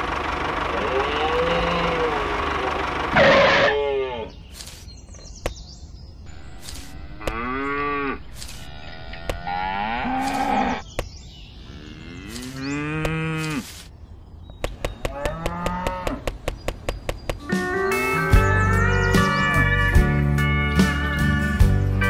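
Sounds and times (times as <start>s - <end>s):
cow mooing: 0.7s - 2.4s, 3.2s - 4.3s, 6.3s - 10.8s, 11.6s - 13.7s, 15.1s - 16.3s
sharp clicks: 8.3s - 9.4s, 14.5s - 17.4s.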